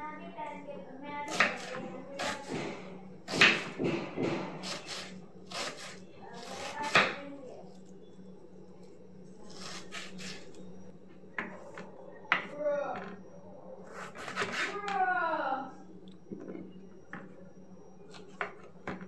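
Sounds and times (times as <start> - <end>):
knife chopping on wooden board: 1.3 - 7.2, 13.9 - 14.7.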